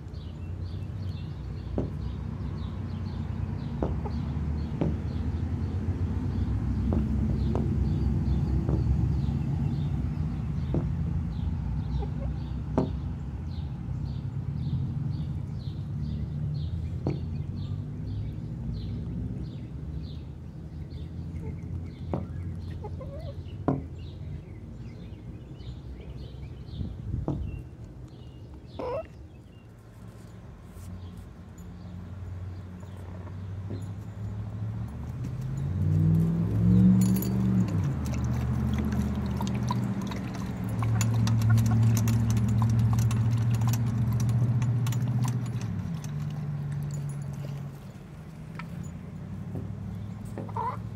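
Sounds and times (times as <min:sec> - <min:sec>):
chickens clucking: 0:28.8 - 0:29.1, 0:38.3 - 0:44.2, 0:50.4 - 0:50.9.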